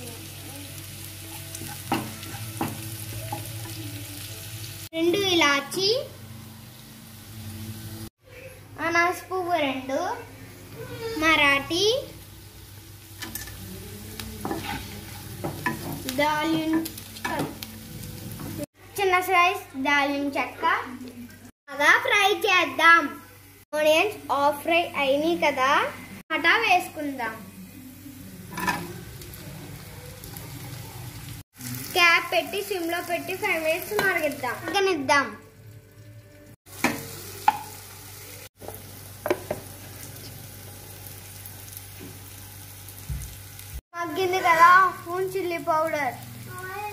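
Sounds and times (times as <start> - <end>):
onions sizzling in hot oil: 0.0 - 8.1, 10.5 - 46.9
spatula scraping and tapping pan: 14.4 - 17.6.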